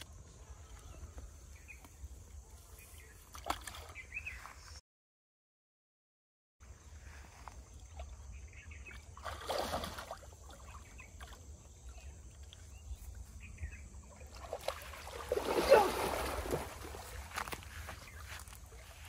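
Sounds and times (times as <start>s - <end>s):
muddy water sloshing: 3.2s - 4.4s, 7.4s - 19.0s.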